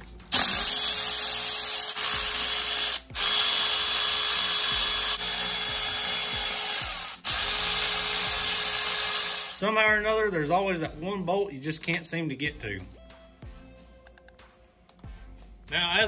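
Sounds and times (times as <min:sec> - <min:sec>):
electric ratchet spinning bolts: 0:00.3 - 0:09.6.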